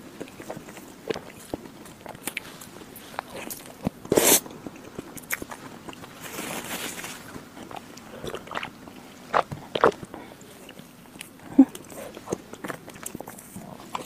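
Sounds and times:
wet chewing: 0.0 - 14.0.

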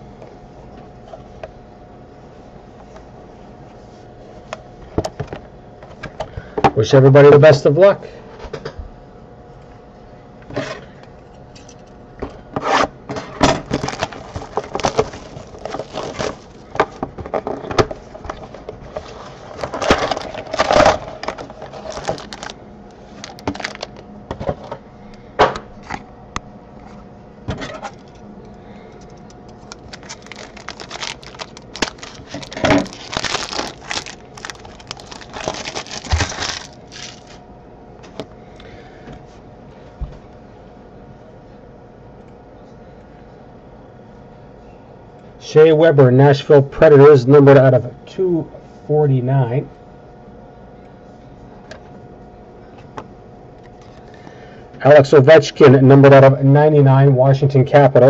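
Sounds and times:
foil pack crinkling and tearing: 13.6 - 24.0, 29.5 - 37.4
cardboard cards shuffling: 13.7 - 24.7, 29.5 - 37.4.

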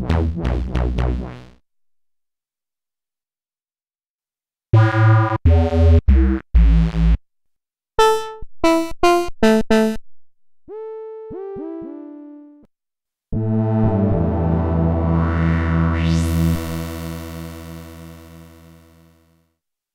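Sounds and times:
synthesizer playing: 8.0 - 10.0, 10.7 - 12.7, 14.2 - 17.0.

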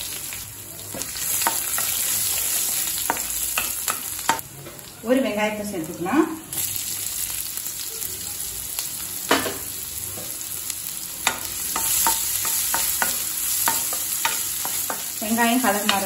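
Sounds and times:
oil sizzling in pan: 0.0 - 16.0
spatula knocking and scraping pan: 1.0 - 4.4, 11.2 - 16.0.

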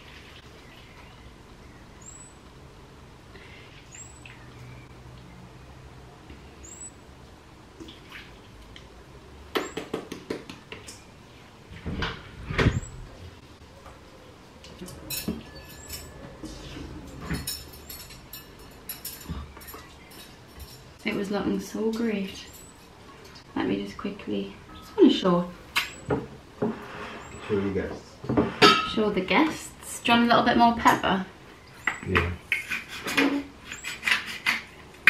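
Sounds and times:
kitchen background noise: 0.0 - 35.0
metal server scraping a pan: 26.6 - 27.8, 32.4 - 34.8.

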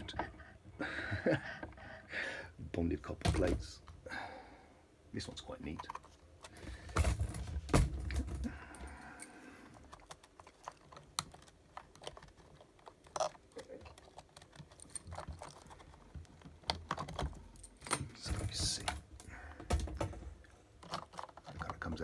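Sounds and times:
small clicks and rattles of wiring: 8.4 - 22.0.

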